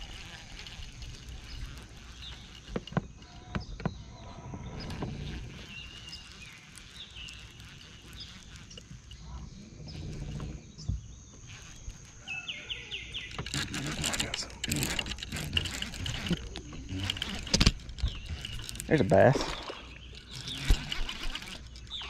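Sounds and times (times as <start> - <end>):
fishing reel clicks and knocks: 0.0 - 4.0, 12.9 - 22.0.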